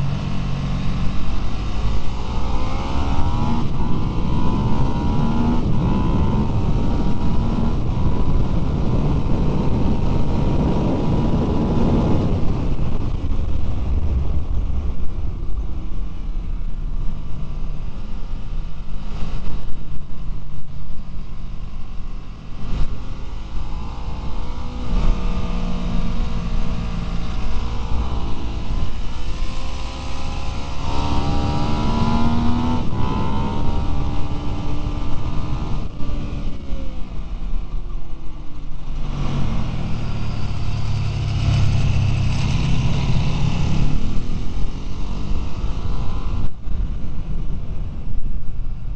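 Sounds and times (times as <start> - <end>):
motorcycle engine revving: 0.0 - 16.0, 22.1 - 48.2
wind rushing: 0.0 - 20.1.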